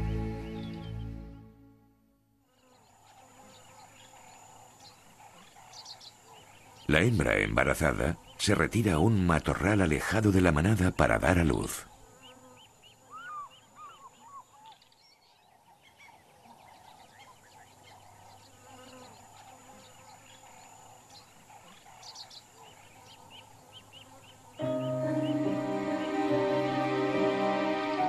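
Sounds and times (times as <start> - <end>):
birds chirping: 0.0 - 1.6, 2.6 - 28.0
soft music: 0.0 - 2.2, 24.6 - 28.0
lower curving bird calls: 11.5 - 28.0.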